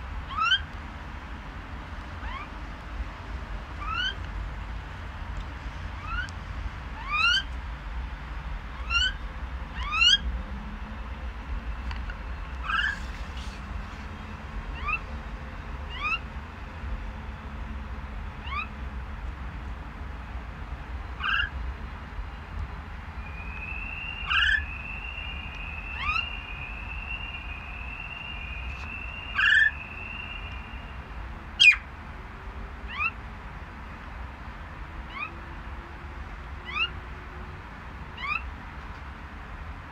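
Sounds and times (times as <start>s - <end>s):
myna bird calling: 0.3s - 0.7s, 2.2s - 2.6s, 3.8s - 4.2s, 6.0s - 6.4s, 7.0s - 7.5s, 8.7s - 9.2s, 9.8s - 10.3s, 12.6s - 13.7s, 14.6s - 15.2s, 15.9s - 16.3s, 18.4s - 18.8s, 21.2s - 21.6s, 23.2s - 31.8s, 32.9s - 33.2s, 35.1s - 35.4s, 36.6s - 37.0s, 38.2s - 38.5s.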